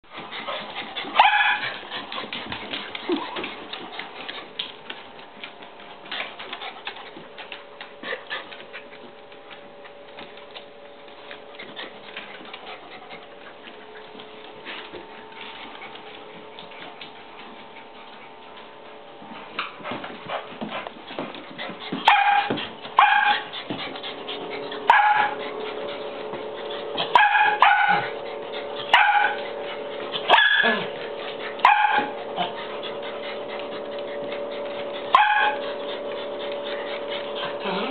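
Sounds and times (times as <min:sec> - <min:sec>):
small dog barking: 0:01.2 - 0:01.7, 0:22.1 - 0:23.5, 0:24.9 - 0:25.4, 0:27.1 - 0:28.0, 0:28.9 - 0:29.4, 0:30.3 - 0:30.8, 0:31.6 - 0:32.2, 0:35.1 - 0:35.6.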